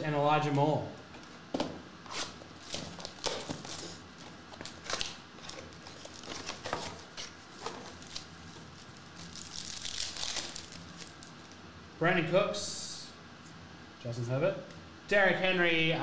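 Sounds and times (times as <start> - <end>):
foil pack tearing: 2.1 - 11.4
plastic wrap crinkling: 2.1 - 11.6.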